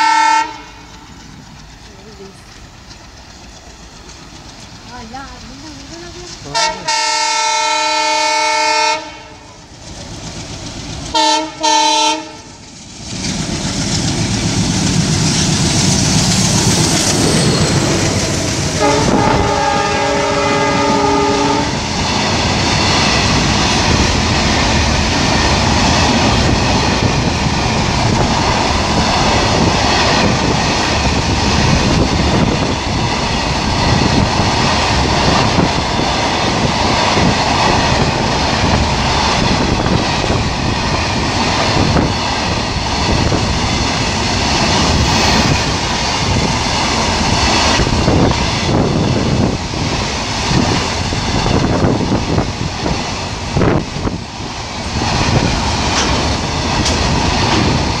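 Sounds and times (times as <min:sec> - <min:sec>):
locomotive horn blasts: 0:00.0 - 0:00.8, 0:06.5 - 0:09.4, 0:11.2 - 0:12.5, 0:18.8 - 0:21.8
train rumbling past: 0:00.0 - 0:58.0
wheels clattering over rail joints: 0:00.7 - 0:06.8, 0:55.0 - 0:58.0.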